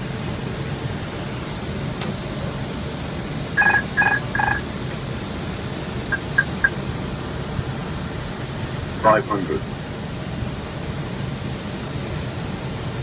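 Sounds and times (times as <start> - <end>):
airflow and engine rumble: 0.0 - 13.0
short electronic beeps: 3.6 - 4.6, 6.1 - 6.8.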